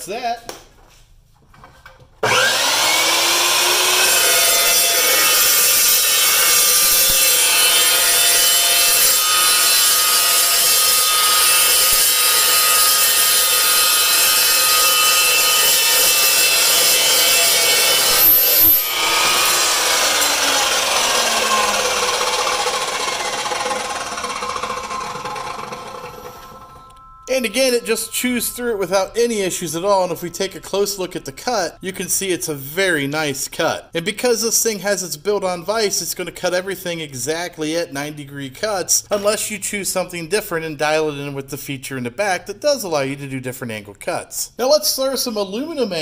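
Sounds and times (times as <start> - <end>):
chop saw motor whine: 2.2 - 31.7
saw blade grinding through steel: 2.2 - 32.2.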